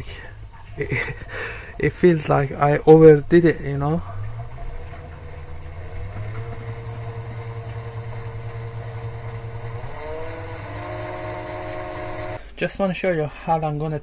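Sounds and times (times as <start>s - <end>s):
lathe motor whine: 4.1s - 12.4s.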